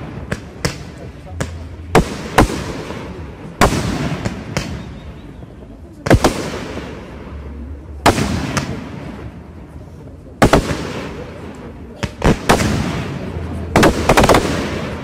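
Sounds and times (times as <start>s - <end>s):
echo of bangs: 0.0s - 5.0s, 8.0s - 9.4s, 12.0s - 15.0s.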